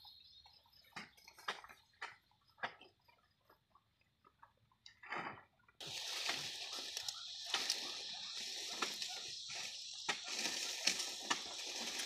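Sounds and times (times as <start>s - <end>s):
stalks rustling: 5.8s - 12.0s
sugarcane stalks knocking: 10.0s - 12.0s.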